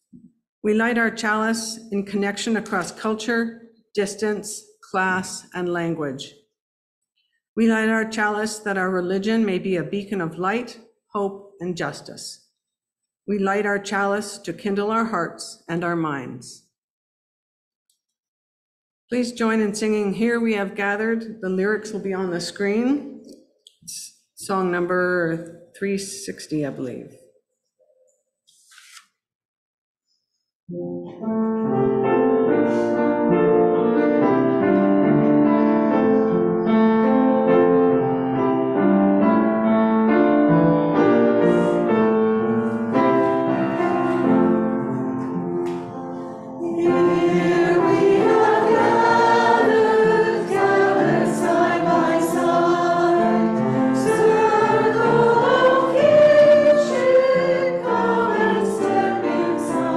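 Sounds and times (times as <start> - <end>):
congregation singing a hymn: 46.2 - 59.9.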